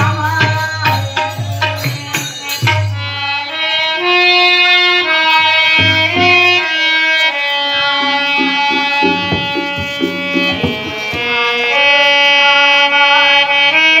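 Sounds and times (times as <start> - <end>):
instrumental melody: 0.0 - 13.3
drum strokes: 5.8 - 6.6, 8.0 - 11.8.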